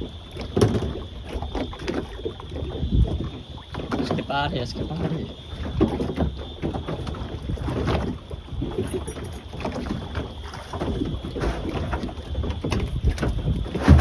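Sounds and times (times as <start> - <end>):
water slapping against boat hull: 0.0 - 14.0
knocks and rustles on board: 10.6 - 14.0.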